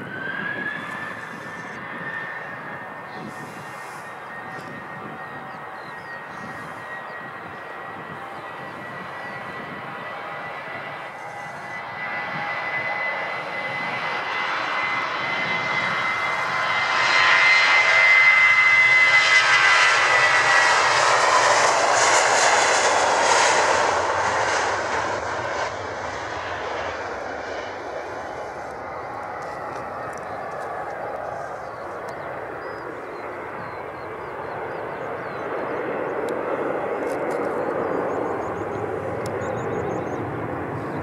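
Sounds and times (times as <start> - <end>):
jet engine whine: 0.0 - 41.0
rushing jet noise: 6.3 - 32.7.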